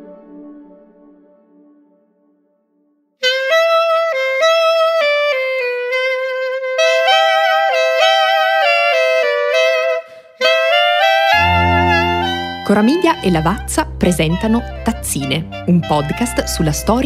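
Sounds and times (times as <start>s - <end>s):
melody of short stepped notes: 11.3s - 17.0s.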